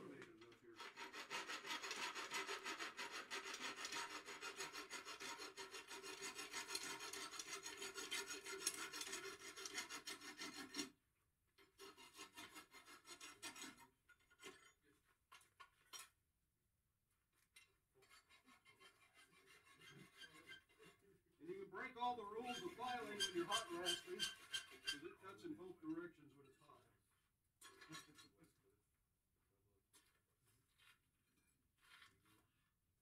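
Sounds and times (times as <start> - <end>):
file rasping on hot steel: 0.8 - 10.9, 11.6 - 14.8, 18.0 - 21.1, 22.4 - 25.0.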